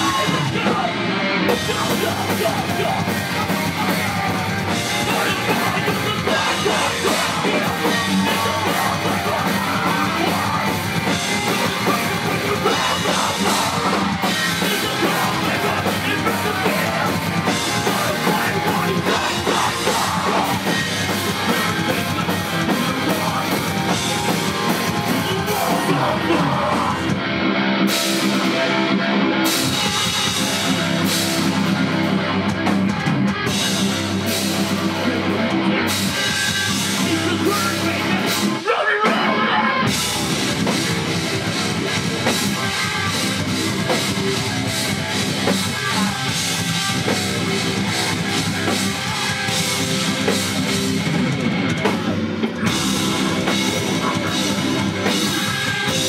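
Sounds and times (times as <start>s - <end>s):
drum kit: 0.0s - 56.0s
electric guitars: 0.0s - 56.0s
live rock band playing: 0.0s - 56.0s.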